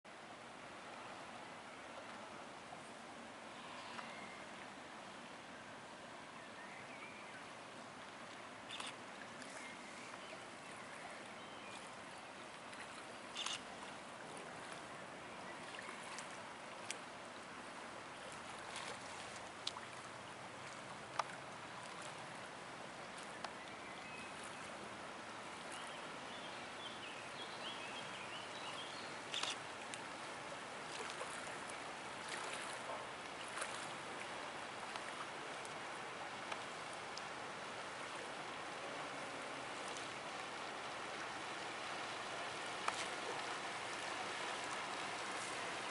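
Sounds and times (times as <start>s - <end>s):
river water rushing: 0.1s - 45.9s
small sharp clicks: 8.7s - 9.0s.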